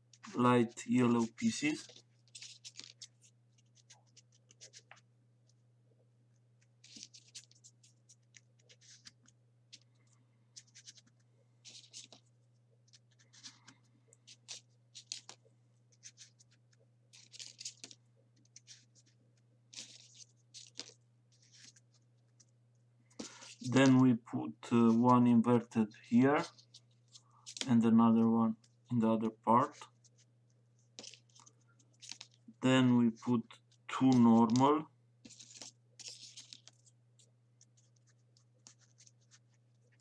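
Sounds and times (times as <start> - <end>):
paper crackling and scraping: 0.1 - 5.0, 10.6 - 12.2, 12.9 - 22.5, 30.9 - 32.4, 33.9 - 40.0.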